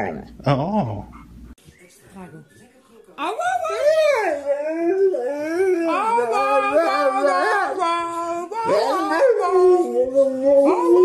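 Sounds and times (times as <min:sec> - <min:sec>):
dog howling and yowling: 0:03.6 - 0:11.0.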